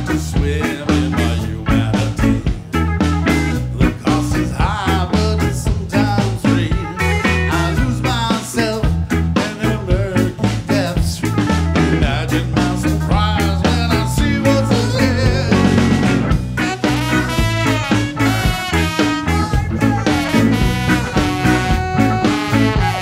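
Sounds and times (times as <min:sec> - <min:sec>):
band playing ska groove: 0:00.0 - 0:23.0
drum kit beat: 0:00.0 - 0:23.0
saxophone: 0:05.7 - 0:08.4, 0:13.9 - 0:23.0.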